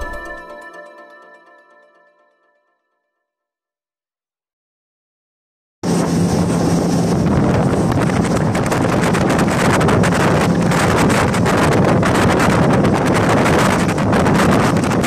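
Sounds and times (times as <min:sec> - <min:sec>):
motorboat engine hum: 0:05.8 - 0:15.0
wind buffeting microphone: 0:05.8 - 0:15.0.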